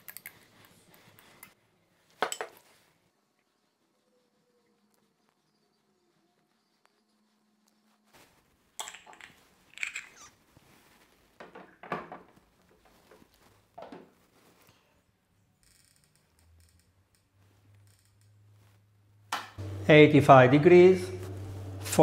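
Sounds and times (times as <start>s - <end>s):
low steady hum: 19.6s - 22.0s.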